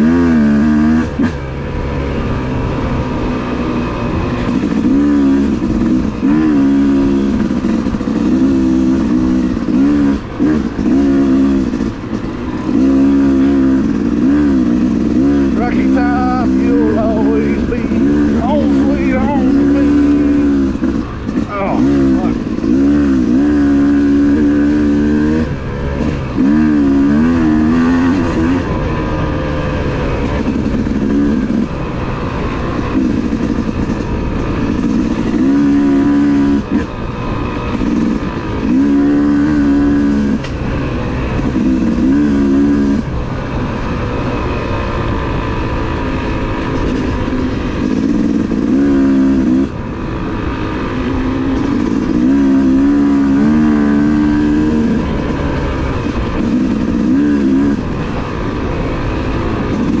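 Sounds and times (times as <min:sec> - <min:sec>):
dirt bike engine revving: 0:00.0 - 1:00.0.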